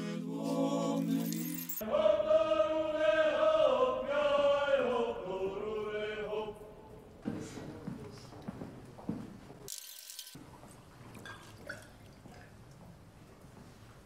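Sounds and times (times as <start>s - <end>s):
voices chanting a hymn: 0.0s - 7.8s.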